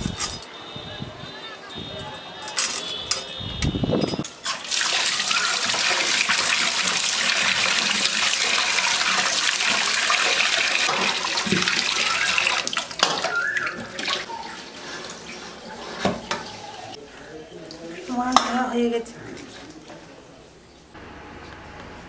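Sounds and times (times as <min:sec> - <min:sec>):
water running and splashing: 0:04.4 - 0:17.0.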